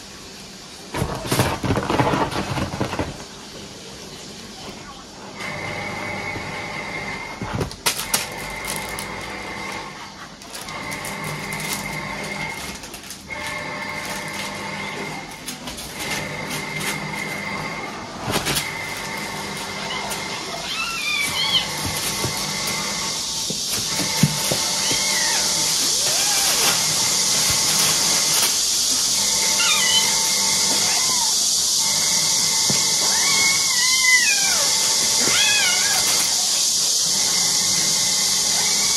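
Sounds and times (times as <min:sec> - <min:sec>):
paws rustling plastic bags: 0:00.9 - 0:03.7, 0:07.1 - 0:37.2
steady high hiss: 0:07.8 - 0:38.9
kittens mewing: 0:18.6 - 0:23.0, 0:24.0 - 0:28.3, 0:29.4 - 0:31.4, 0:32.7 - 0:36.5.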